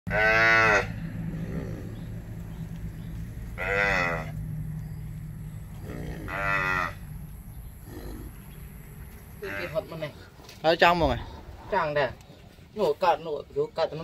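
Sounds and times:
cattle mooing: 0:00.1 - 0:02.3, 0:03.4 - 0:04.4, 0:05.7 - 0:07.2, 0:09.4 - 0:10.1.

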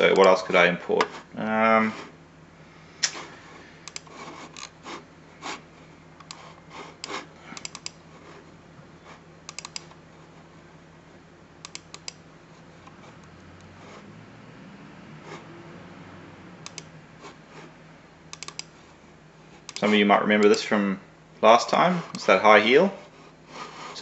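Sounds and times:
faint steady hum: 0:00.0 - 0:24.0
computer mouse buttons clicking: 0:03.9 - 0:04.7, 0:07.0 - 0:08.0, 0:09.5 - 0:10.0, 0:11.6 - 0:12.2, 0:16.6 - 0:16.9, 0:18.3 - 0:18.7.

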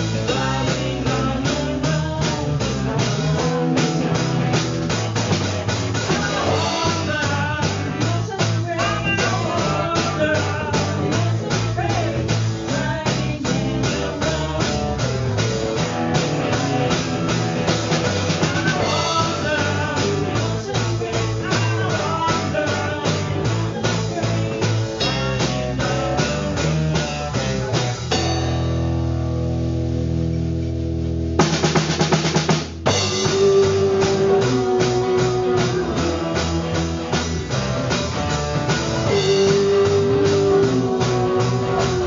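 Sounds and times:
bass guitar: 0:00.0 - 0:42.0
drum kit beat: 0:00.0 - 0:42.0
electric guitar: 0:00.0 - 0:42.0
woman singing: 0:00.2 - 0:03.9, 0:06.1 - 0:15.0, 0:18.4 - 0:24.6, 0:33.1 - 0:37.1, 0:39.1 - 0:42.0.

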